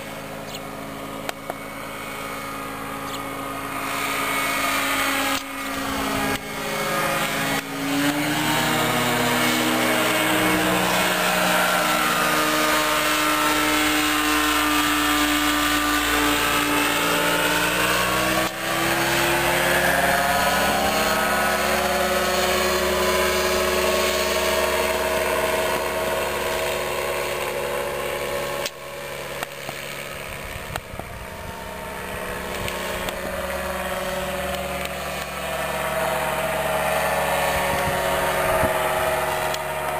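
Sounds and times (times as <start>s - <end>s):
microlight engine and propeller droning: 0.0s - 39.9s.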